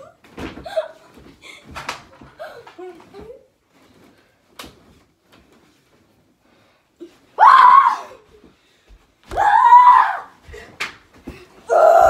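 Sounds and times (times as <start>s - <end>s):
child screaming: 7.4s - 8.2s, 9.3s - 10.4s, 11.7s - 12.0s.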